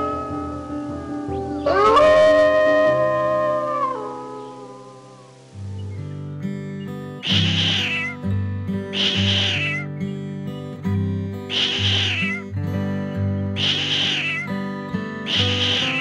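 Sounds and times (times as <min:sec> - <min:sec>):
acoustic guitar music: 0:00.0 - 0:16.0
cat meowing: 0:07.2 - 0:08.2, 0:09.0 - 0:09.9, 0:11.5 - 0:12.5, 0:13.6 - 0:14.6.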